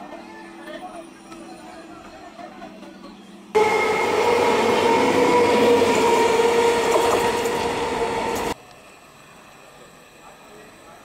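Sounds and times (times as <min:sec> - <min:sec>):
electric train humming: 0:03.2 - 0:11.0
train wheels rumbling on rail: 0:03.6 - 0:11.0.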